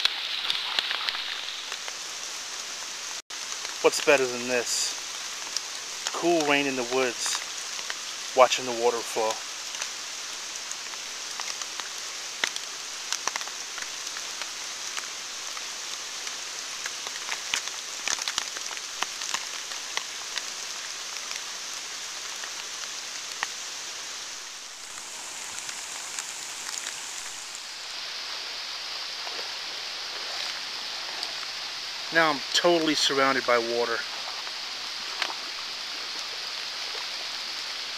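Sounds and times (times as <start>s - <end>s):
steady rain falling: 0.0s - 37.9s
raindrops tapping on plastic bag: 10.7s - 21.5s.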